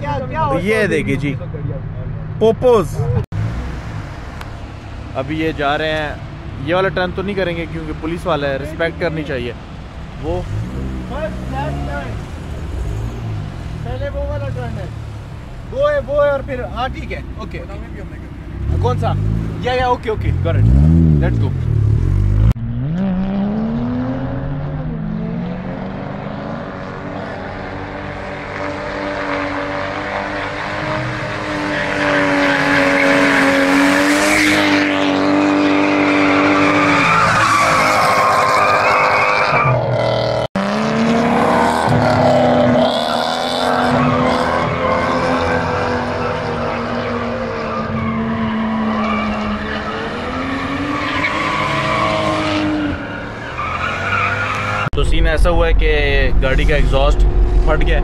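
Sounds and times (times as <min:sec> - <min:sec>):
car engine at high revs: 0:17.9 - 0:55.0
tyres squealing: 0:35.6 - 0:40.0.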